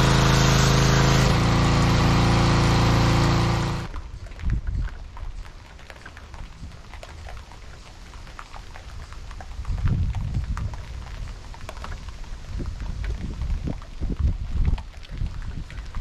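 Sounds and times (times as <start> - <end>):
foam crackling and fizzing: 0.0 - 16.0
wind buffeting microphone: 3.3 - 5.5, 8.8 - 16.0.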